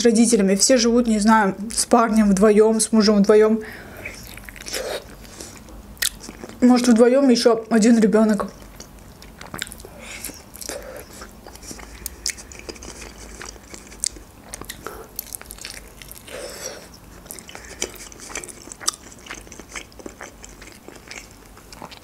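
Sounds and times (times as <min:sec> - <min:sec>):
person chewing: 0:04.0 - 0:06.6, 0:08.5 - 0:22.0.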